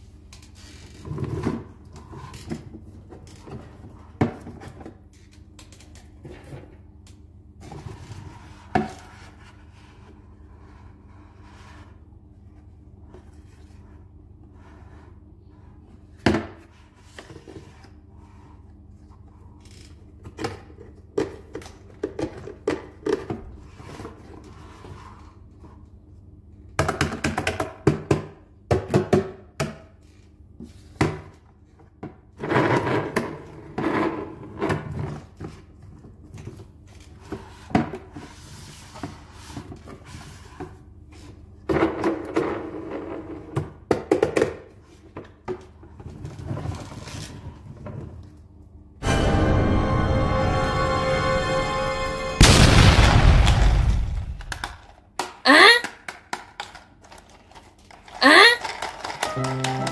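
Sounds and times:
plastic toy parts knocking and rattling: 20.2s - 23.4s, 54.4s - 59.9s.

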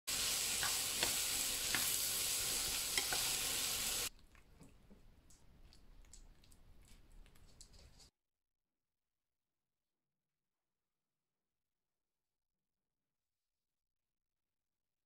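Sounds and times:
vegetables sizzling in frying pan: 0.1s - 4.1s
spatula scraping pan: 0.3s - 4.0s.

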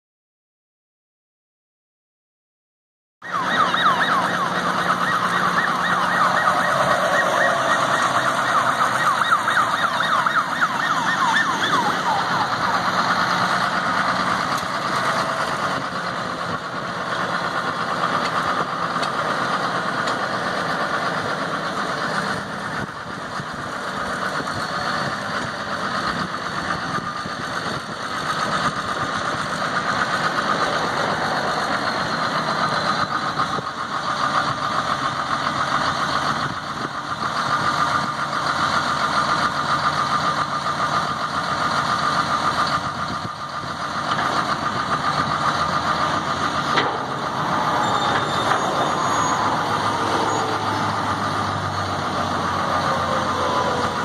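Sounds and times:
tractor diesel engine running: 3.2s - 54.0s.

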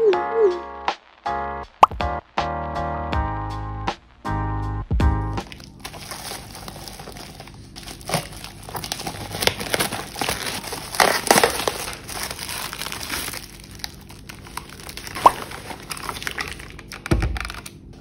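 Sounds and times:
plastic packaging crinkling: 5.4s - 18.0s.

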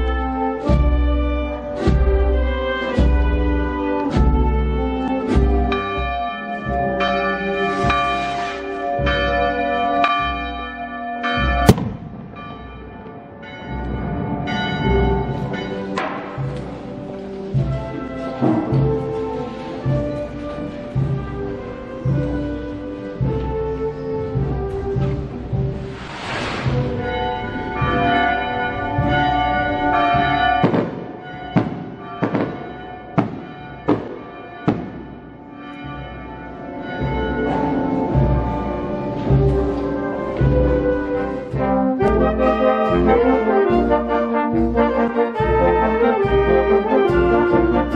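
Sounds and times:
church bells ringing: 0.0s - 47.9s
sharp crack: 11.6s - 12.4s.

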